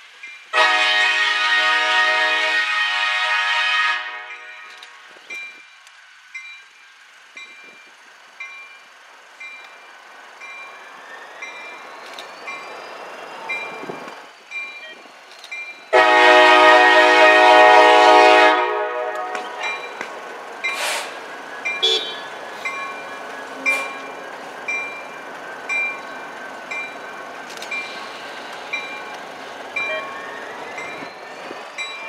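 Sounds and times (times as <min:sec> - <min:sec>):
diesel locomotive approaching: 0:00.0 - 0:32.0
locomotive air horn blast: 0:00.5 - 0:05.0, 0:15.9 - 0:19.7, 0:20.8 - 0:21.2, 0:21.8 - 0:22.3
locomotive bell ringing: 0:06.4 - 0:17.6, 0:18.3 - 0:32.0.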